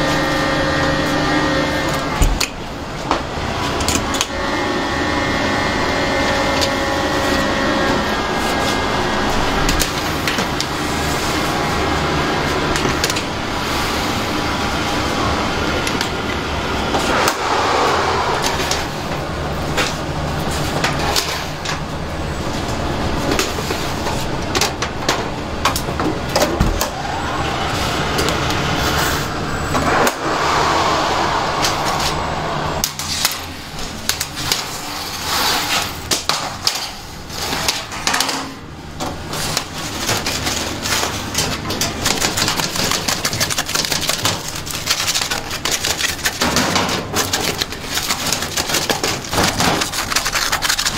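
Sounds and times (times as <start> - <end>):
machinery hum: 0.0 - 50.9
metal baking trays clattering: 32.8 - 50.9.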